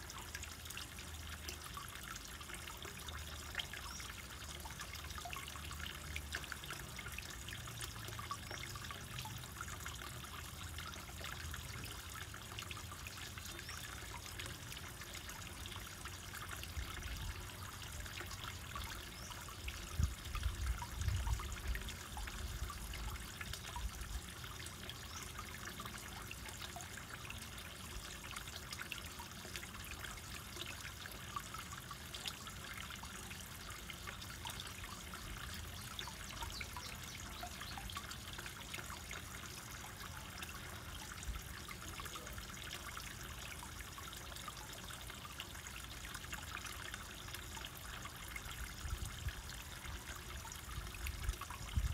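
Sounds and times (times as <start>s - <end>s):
water trickling into pond: 0.0s - 51.9s.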